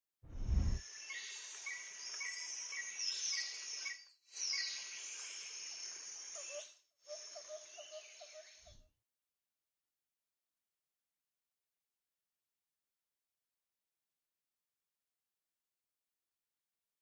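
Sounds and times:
steady insect hiss: 0.8 - 8.7.

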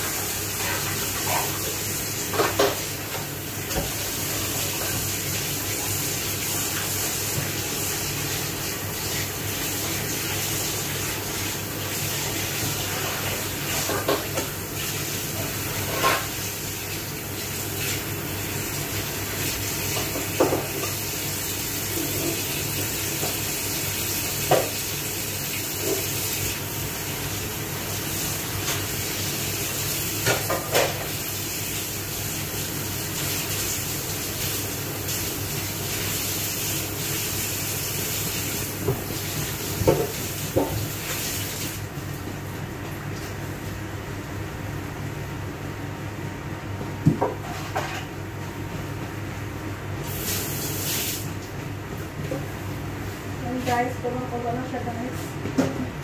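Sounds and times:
water rushing into sink: 0.0 - 41.9.

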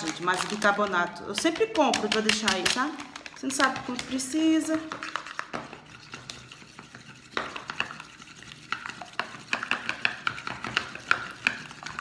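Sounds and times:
spoon clinking and scraping bowl: 3.5 - 12.0.

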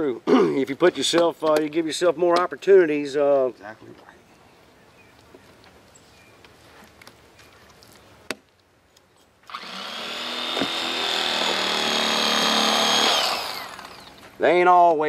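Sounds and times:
electric fillet knife whine: 9.5 - 14.2.

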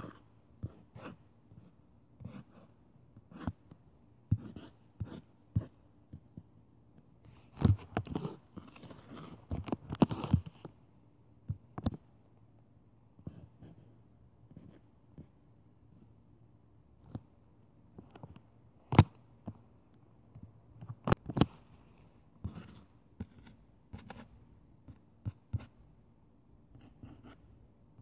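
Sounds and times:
drawing strokes on touchscreen: 0.0 - 6.5, 22.4 - 26.0.

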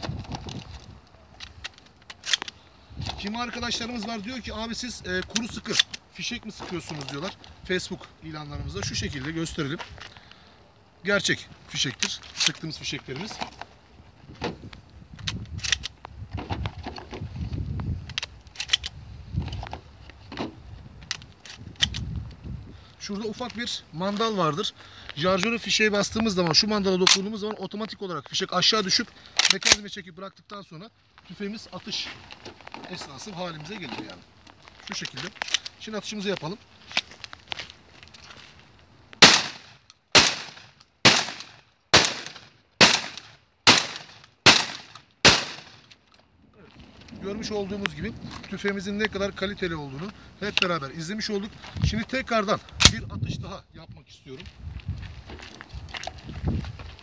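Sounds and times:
shotgun clicks and rattles: 0.0 - 2.6, 15.2 - 16.1, 18.0 - 19.7, 21.0 - 22.1
shotgun shots: 39.2 - 45.8.

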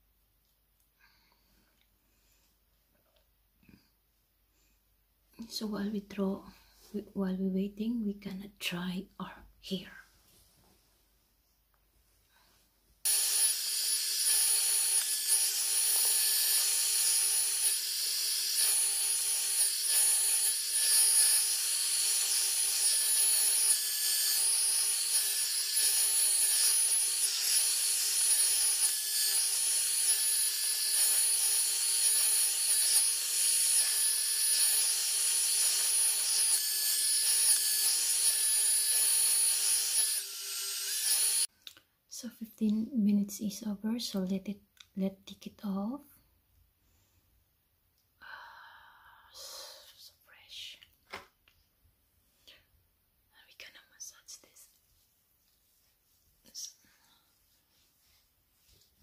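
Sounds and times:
hair dryer running: 13.1 - 41.5.

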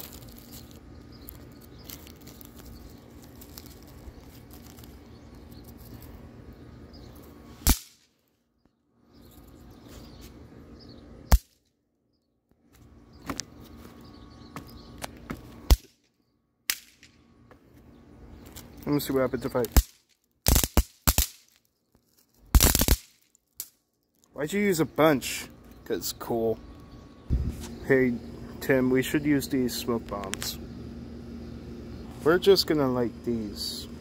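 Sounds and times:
snap pops cracking: 7.6 - 8.1, 19.6 - 21.5, 22.5 - 23.8.

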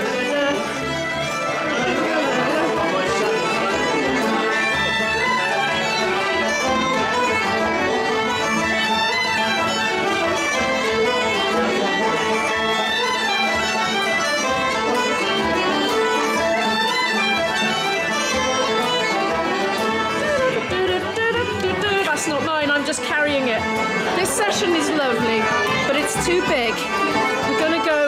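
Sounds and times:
fiddles playing a tune: 0.0 - 28.0
flute: 0.0 - 28.0
plucked strings: 0.0 - 28.0.

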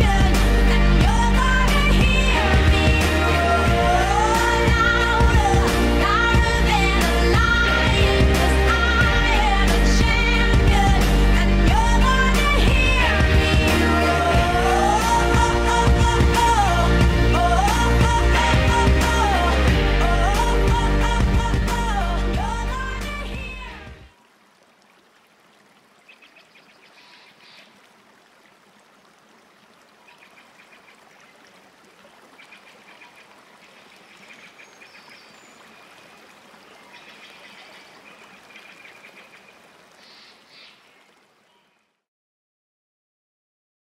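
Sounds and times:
music: 0.0 - 24.1.

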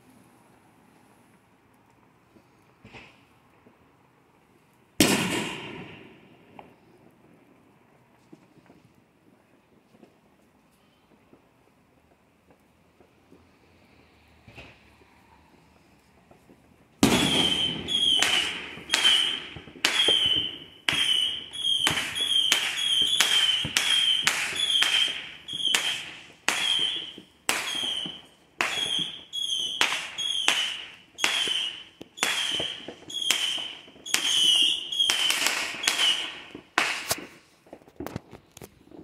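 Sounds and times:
quiet firework pops: 1.3 - 3.8, 5.0 - 7.4, 8.0 - 39.0
fireworks bangs: 5.0 - 6.9, 16.1 - 39.0.

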